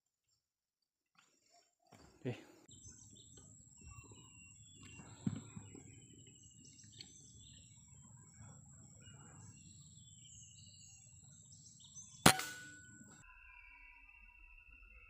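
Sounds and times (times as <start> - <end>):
birds chirping: 1.4 - 13.2
rifle shot: 12.2 - 13.2.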